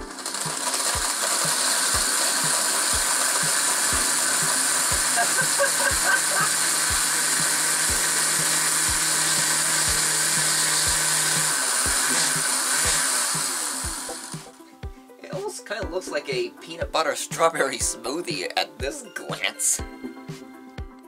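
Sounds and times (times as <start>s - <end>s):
blender grinding food: 0.0s - 14.7s.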